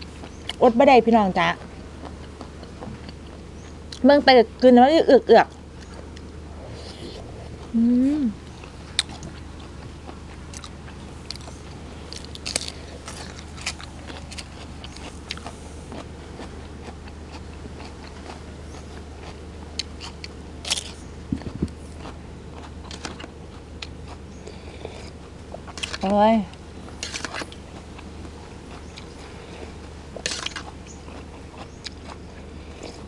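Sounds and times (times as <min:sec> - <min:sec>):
steady low hum: 0:00.0 - 0:33.0
crunchy bites and wet chewing: 0:01.6 - 0:04.1, 0:08.4 - 0:33.0.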